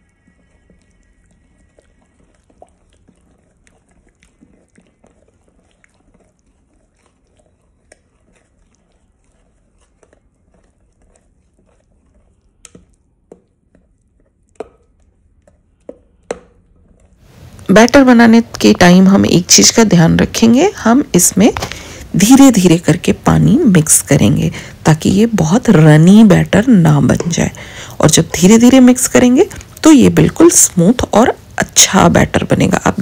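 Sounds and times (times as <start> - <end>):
spoon stirring thick batter: 0.0 - 33.0.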